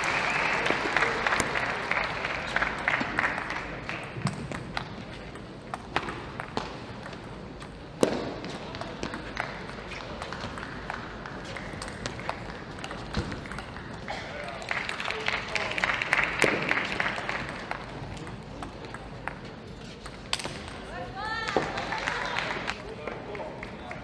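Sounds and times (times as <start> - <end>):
applause: 0.0 - 4.1, 14.4 - 18.0, 21.4 - 24.0
crowd noise: 0.0 - 24.0.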